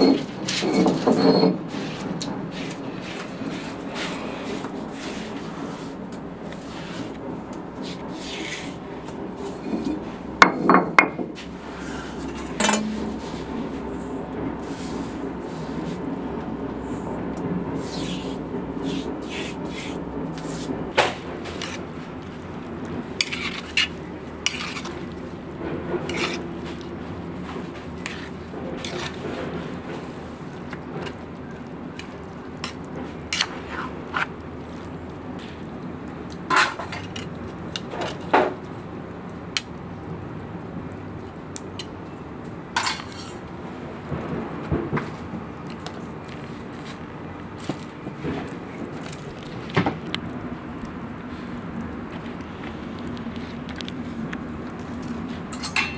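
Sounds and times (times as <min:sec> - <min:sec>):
metal spoon scraping a pot: 0:12.1 - 0:15.1, 0:21.4 - 0:21.8, 0:23.1 - 0:25.2, 0:26.0 - 0:26.8, 0:27.8 - 0:29.9, 0:42.8 - 0:43.4.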